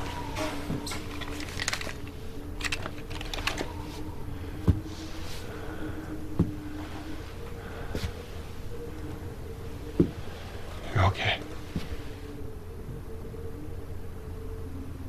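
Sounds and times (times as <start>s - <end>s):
low steady hum: 0.0s - 15.0s
heavy thumps: 6.3s - 6.8s, 9.9s - 10.3s.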